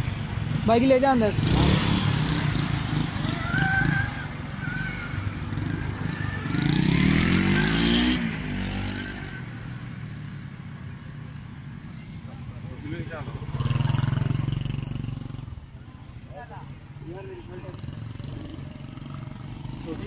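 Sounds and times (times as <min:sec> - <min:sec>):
small motorcycle engine revving: 0:00.5 - 0:09.5, 0:13.0 - 0:15.5, 0:17.6 - 0:20.0.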